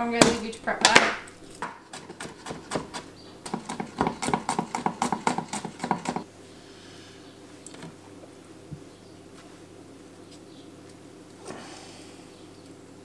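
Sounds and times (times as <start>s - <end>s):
knife chopping on plastic board: 0.2s - 6.2s.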